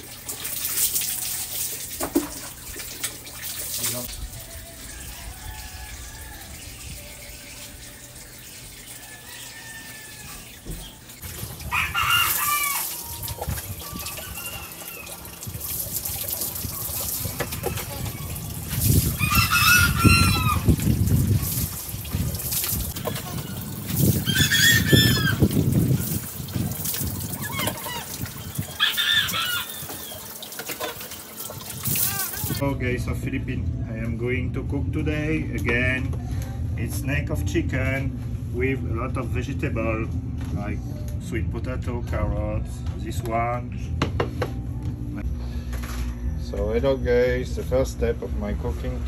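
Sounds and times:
water running and splashing: 0.0s - 32.6s.

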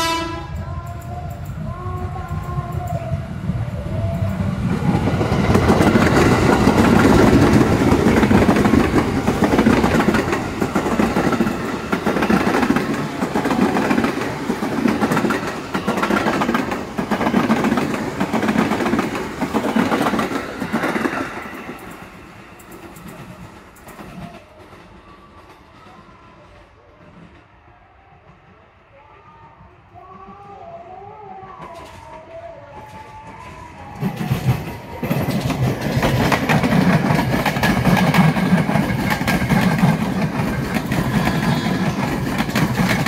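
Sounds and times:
electric train passing: 0.0s - 43.0s
train wheels clacking over rail joints: 5.2s - 24.3s, 34.0s - 43.0s.

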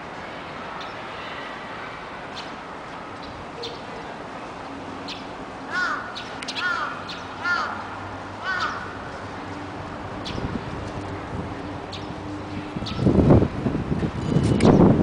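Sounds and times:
small birds chirping: 3.2s - 3.9s, 5.0s - 7.8s, 10.2s - 10.6s, 11.8s - 12.2s, 12.8s - 13.2s
crow cawing: 5.7s - 9.0s.

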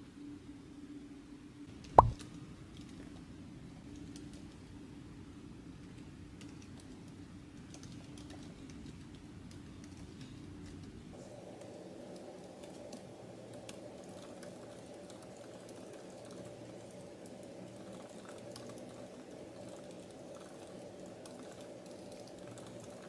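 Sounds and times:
laptop keyboard typing: 5.8s - 10.9s, 11.5s - 23.0s.

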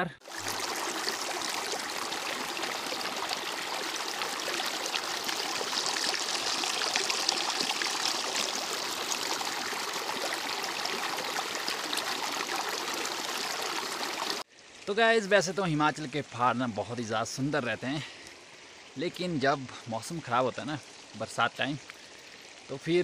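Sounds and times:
stream rushing over rocks: 0.2s - 14.5s.

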